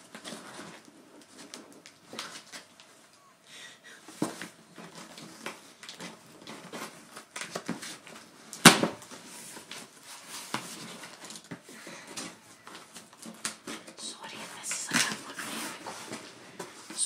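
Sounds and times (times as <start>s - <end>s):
cardboard rustling: 4.1s - 17.0s.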